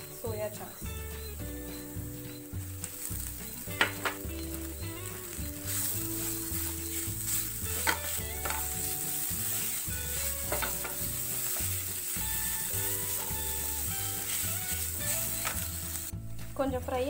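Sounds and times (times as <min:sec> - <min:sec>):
food sizzling in a pan: 0:00.0 - 0:17.0
wooden spatula scraping a pan: 0:01.3 - 0:16.1.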